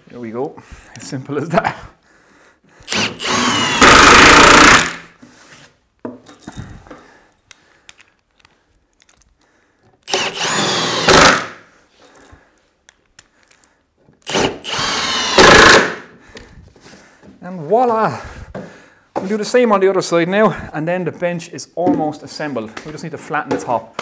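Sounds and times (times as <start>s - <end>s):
impact driver whining and hammering: 2.8s - 5.1s, 10.0s - 11.6s, 14.2s - 16.1s.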